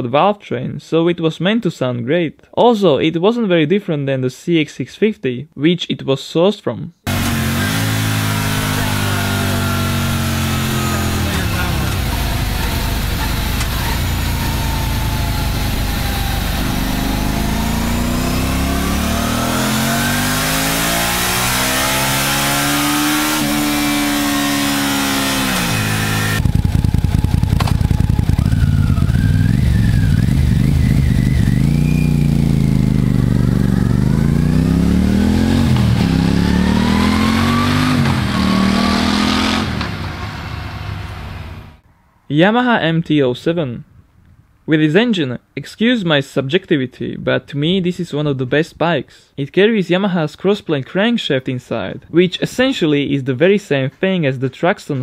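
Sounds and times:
motorcycle accelerating with gear changes: 7.1 - 41.8
motorcycle engine revving: 7.1 - 41.8.

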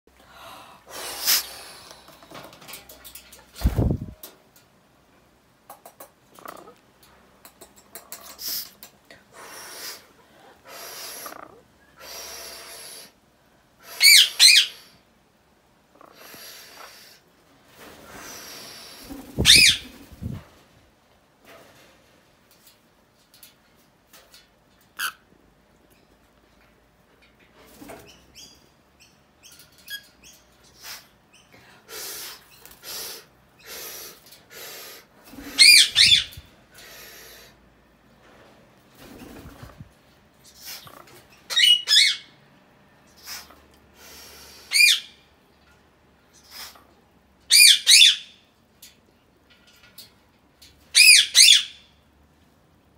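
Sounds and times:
parrot harsh hissing rasps: 0.8 - 2.0, 8.3 - 13.2, 13.8 - 15.0, 16.0 - 17.3, 18.0 - 19.7, 30.7 - 37.6, 40.4 - 41.1, 43.1 - 45.2, 46.4 - 47.0
shrill bird screeches: 13.9 - 14.9, 35.5 - 36.4, 44.7 - 45.2, 51.0 - 51.8.

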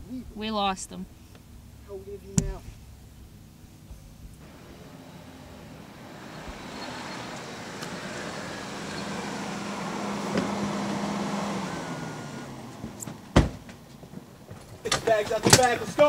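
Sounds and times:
car pulling in: 1.1 - 16.0
car door clunk: 4.4 - 16.0.

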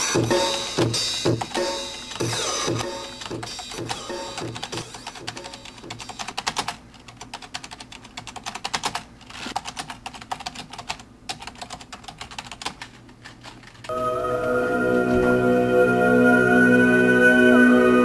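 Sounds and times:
fast keyboard typing: 0.0 - 13.9.

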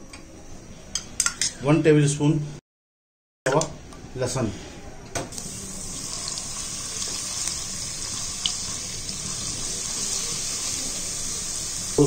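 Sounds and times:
garlic sizzling in hot oil: 5.3 - 12.0.

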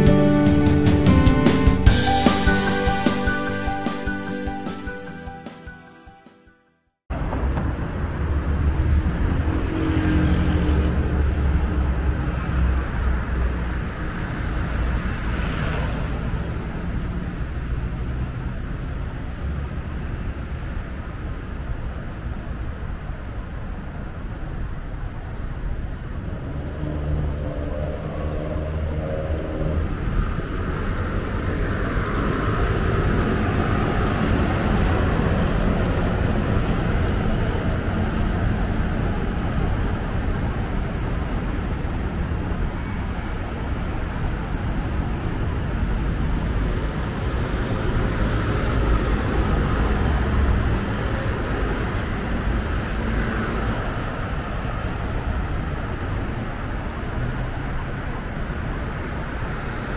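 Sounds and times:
road traffic passing: 0.0 - 6.5, 7.1 - 59.9.

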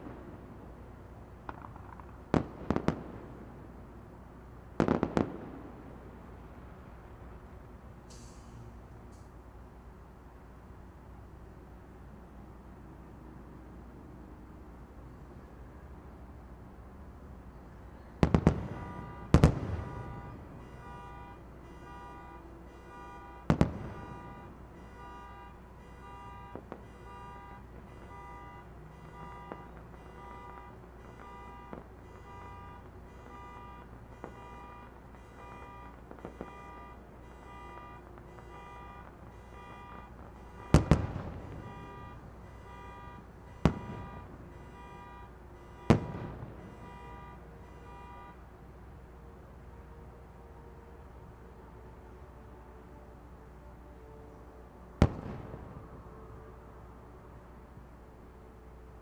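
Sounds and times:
distant fireworks bangs: 0.0 - 0.8, 1.4 - 3.8, 4.7 - 6.2, 18.2 - 48.2, 55.0 - 56.0
small fireworks pops: 1.4 - 3.7, 4.8 - 5.9, 18.1 - 20.8, 22.8 - 24.3, 25.8 - 28.3, 29.1 - 33.5, 34.1 - 44.3, 45.9 - 46.9, 55.0 - 56.0.

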